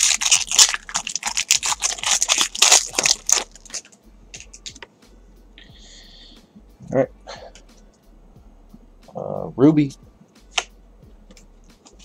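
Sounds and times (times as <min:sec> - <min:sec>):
foil wrapper tearing and crinkling: 0:00.0 - 0:04.8.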